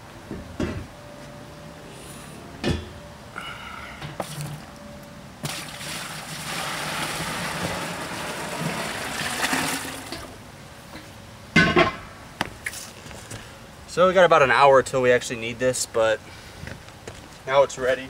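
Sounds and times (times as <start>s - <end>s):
water pouring into cooler: 5.4s - 10.4s.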